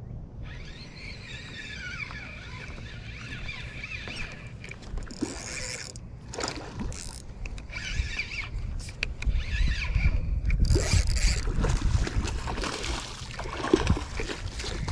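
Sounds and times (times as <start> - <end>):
wind rumbling on microphone: 0.0 - 14.9
fishing reel cranking: 0.4 - 11.6.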